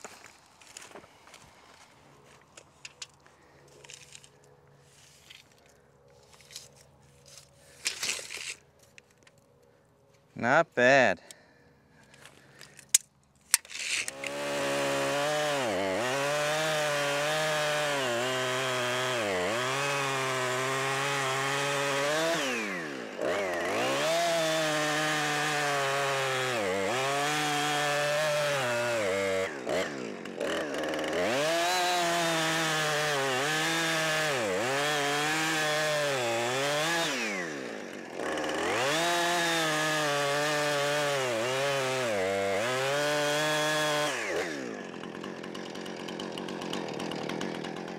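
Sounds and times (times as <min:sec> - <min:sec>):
chainsaw cutting a log: 0:13.8 - 0:47.9.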